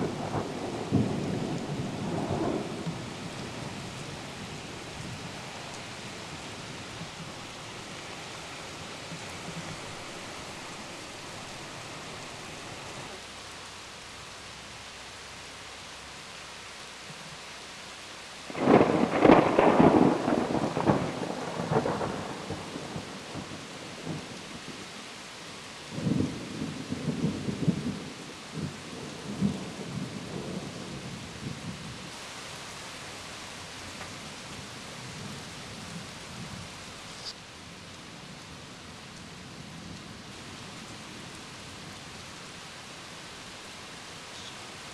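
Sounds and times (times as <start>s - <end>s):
thunder crash and rumble: 0.0s - 3.8s, 18.5s - 23.5s
heavy rain hiss: 0.0s - 44.9s.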